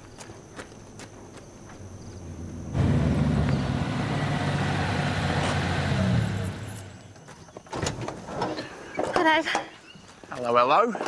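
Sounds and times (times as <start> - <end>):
vehicle engine running: 2.2 - 7.2.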